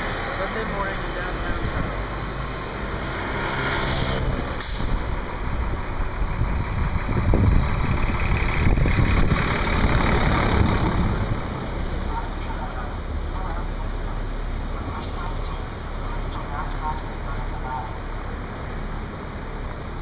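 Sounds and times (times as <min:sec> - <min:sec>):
bus engine running: 0:00.0 - 0:20.0
road noise: 0:00.0 - 0:20.0
street traffic: 0:00.0 - 0:20.0
wind buffeting microphone: 0:04.4 - 0:12.0.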